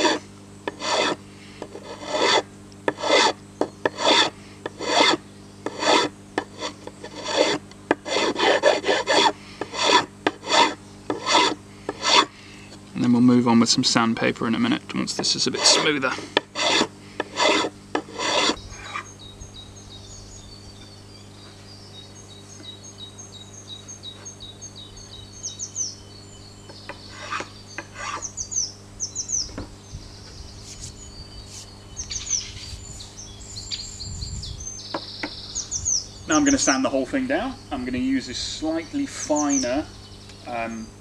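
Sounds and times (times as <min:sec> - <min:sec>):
metal file rasping on wood: 0:00.0 - 0:12.3, 0:15.2 - 0:19.1
birds chirping: 0:10.5 - 0:41.0.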